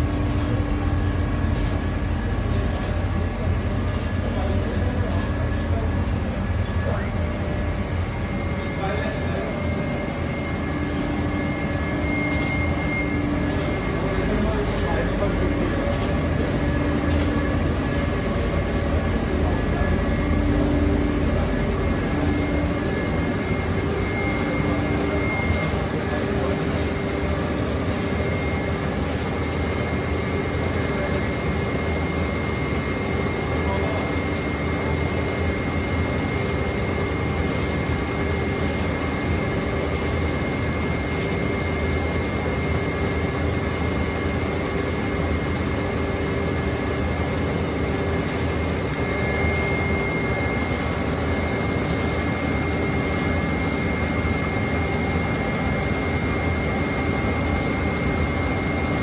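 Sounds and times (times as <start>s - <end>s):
fans and motors whirring: 0.0s - 59.0s
thin high whine: 6.4s - 35.7s.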